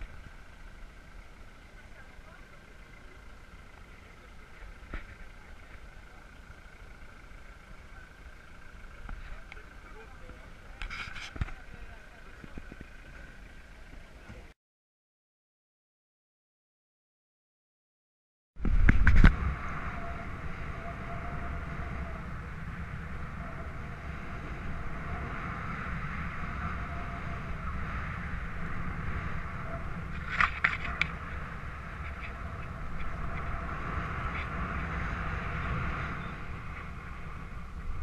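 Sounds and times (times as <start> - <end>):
wind rushing over microphone: 18.6 - 38.0.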